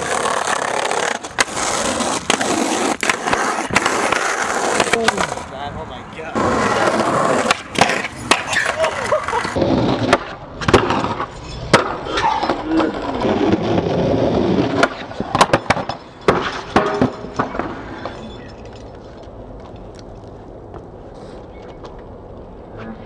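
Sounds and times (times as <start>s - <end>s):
skateboard clacking on concrete: 0.0s - 5.5s, 6.4s - 13.6s
skateboard wheels rolling on pavement: 0.0s - 23.0s.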